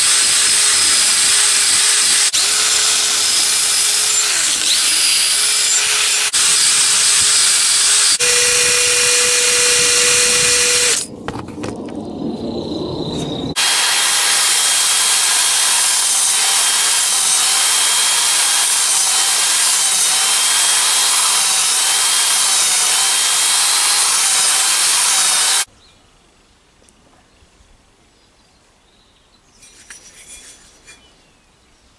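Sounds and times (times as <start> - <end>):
belt sander grinding blade: 0.0 - 11.4, 13.6 - 25.7
drill with wire brush scrubbing metal: 0.0 - 11.4, 13.6 - 25.7.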